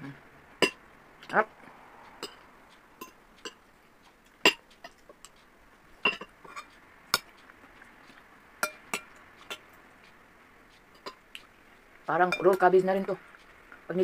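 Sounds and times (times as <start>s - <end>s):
cutlery clinking on glass bowl: 6.0s - 7.3s, 8.6s - 9.2s.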